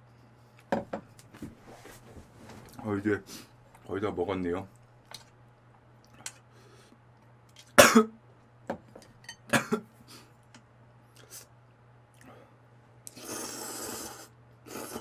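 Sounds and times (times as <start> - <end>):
man coughing: 7.8 - 8.2, 9.5 - 9.9.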